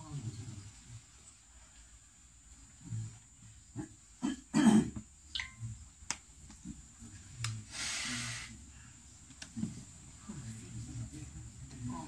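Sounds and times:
person clearing throat: 3.8 - 5.0
breathy hiss: 7.5 - 9.1.

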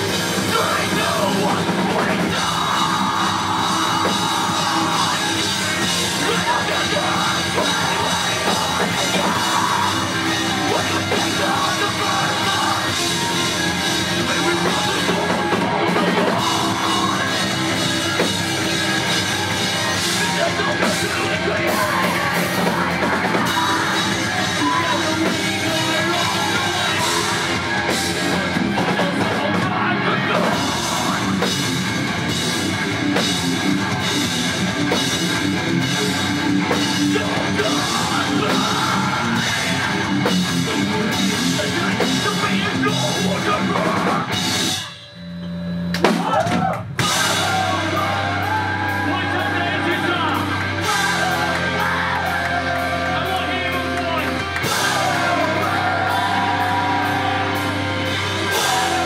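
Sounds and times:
drum and cymbal hits: 0.0 - 29.8, 30.4 - 45.1, 45.9 - 59.0
rock band playing: 0.0 - 59.0
person singing into microphone: 0.5 - 18.8, 19.8 - 31.6, 36.8 - 39.9.

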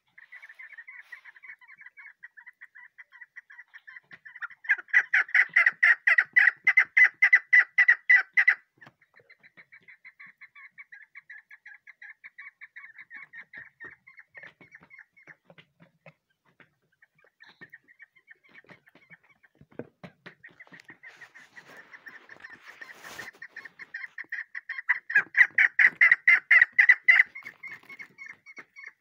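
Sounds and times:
partridge calling: 0.0 - 29.0.

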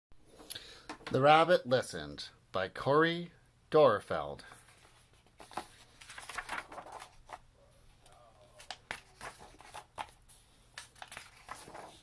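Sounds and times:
book pages turning: 4.5 - 7.4, 8.0 - 12.0.

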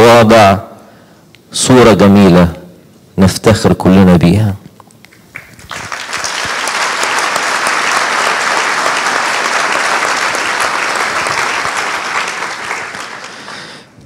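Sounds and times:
audience applauding: 5.2 - 13.9.

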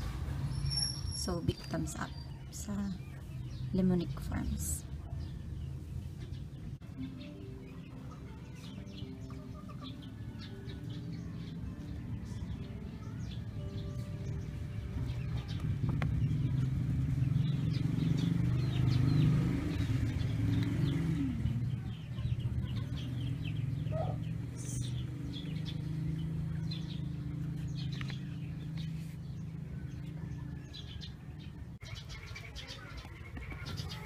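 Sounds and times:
small birds chirping: 0.4 - 34.0
chickens clucking: 7.8 - 10.5, 31.8 - 34.0.

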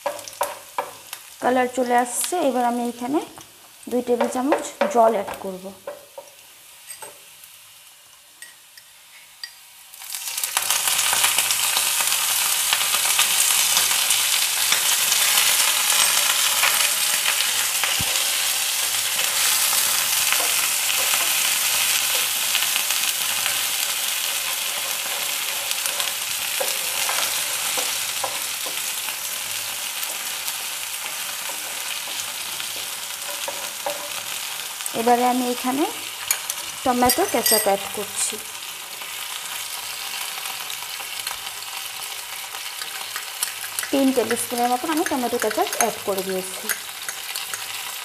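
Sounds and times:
loud sizzle of water in oil: 6.1 - 37.0, 38.1 - 48.0
spatula stirring clicks: 42.7 - 47.8.

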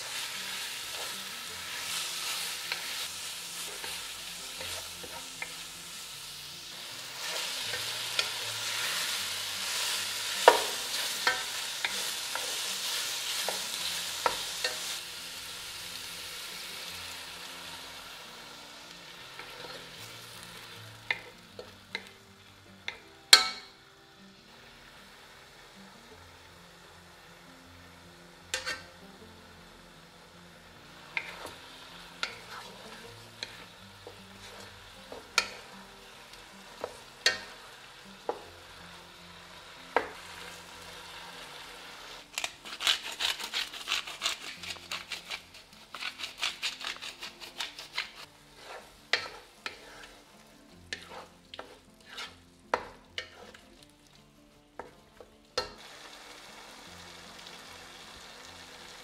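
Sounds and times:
faint sizzle: 0.0 - 59.0
utensil tapping frying pan: 9.7 - 15.0, 21.0 - 22.2, 22.8 - 23.8, 28.5 - 28.9, 31.1 - 31.6, 32.2 - 37.6, 39.9 - 40.6, 42.3 - 50.2, 50.9 - 53.8, 54.8 - 55.9.

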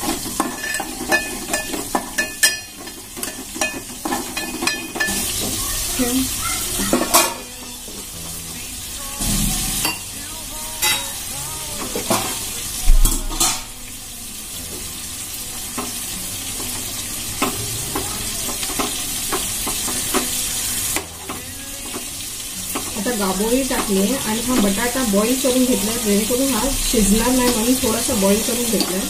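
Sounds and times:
spoon stirring and scraping pot: 0.0 - 5.4
steel lids clanking on pots: 0.0 - 5.4, 6.8 - 7.5, 13.0 - 13.7, 27.1 - 29.0
pot sizzling: 0.0 - 29.0.

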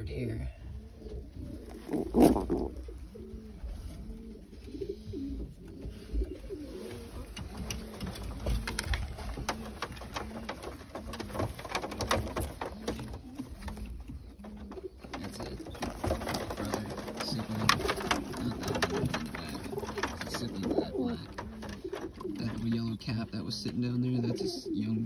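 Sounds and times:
pigeons cooing: 0.0 - 25.0
clicks and knocks: 7.3 - 22.8.

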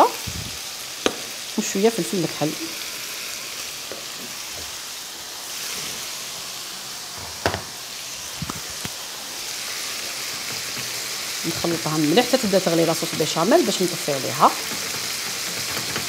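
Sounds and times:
chicken sizzling in a pan: 0.0 - 16.0.

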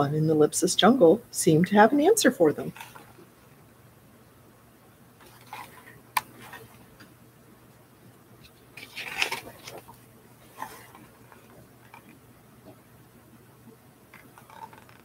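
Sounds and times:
book pages rustling: 5.2 - 7.1, 8.4 - 12.2, 14.2 - 15.0.

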